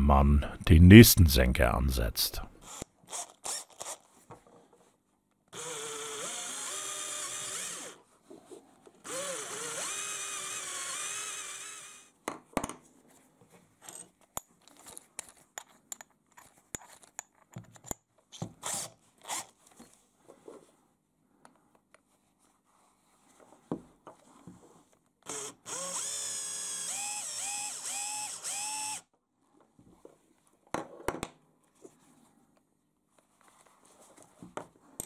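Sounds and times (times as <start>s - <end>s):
cordless drill running: 5.6s - 8.0s, 9.1s - 12.1s, 25.3s - 29.0s.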